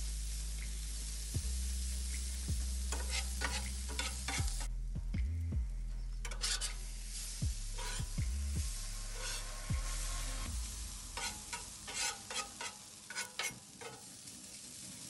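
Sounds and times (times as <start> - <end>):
hash browns sizzling on a griddle: 0.0 - 4.7, 6.2 - 15.0
low hum: 0.0 - 12.0
metal spatula scraping: 2.9 - 4.7, 6.2 - 8.2, 9.1 - 9.7, 11.0 - 14.1
low thumps: 4.4 - 6.3, 7.4 - 11.2.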